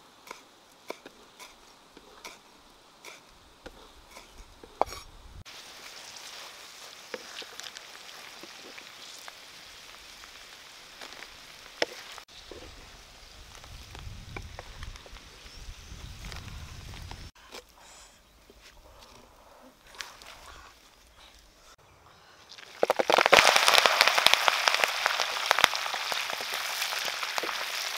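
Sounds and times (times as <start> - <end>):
grubs sizzling in oil: 5.4 - 13.9, 22.5 - 27.9.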